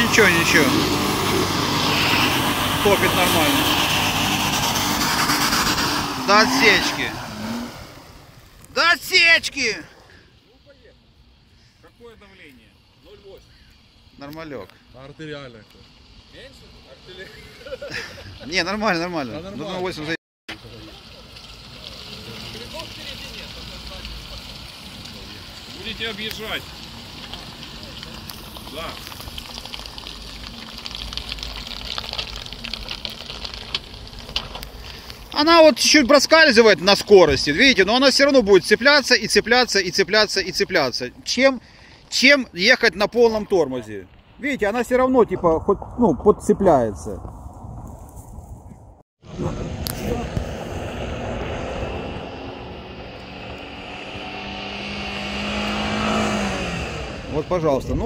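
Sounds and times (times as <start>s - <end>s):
distant vehicle engine drone: 0.0s - 8.7s, 49.3s - 58.0s
steady hiss: 0.0s - 18.7s, 20.5s - 31.6s
off-road engine under load: 0.0s - 45.0s, 49.2s - 58.0s.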